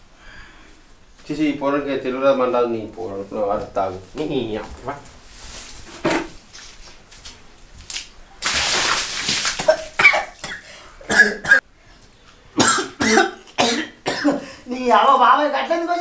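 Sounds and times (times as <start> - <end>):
water splashing: 7.8 - 10.6
man coughing and spluttering: 9.1 - 11.6, 12.6 - 14.5.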